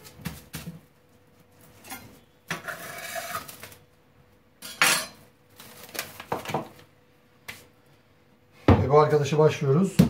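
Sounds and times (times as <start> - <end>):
plastic cling film rustling: 2.7 - 4.0, 5.4 - 7.0.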